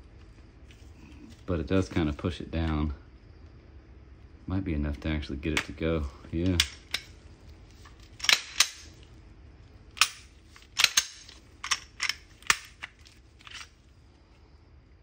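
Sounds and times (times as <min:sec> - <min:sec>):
pistol slide clicking: 0:10.0 - 0:12.9.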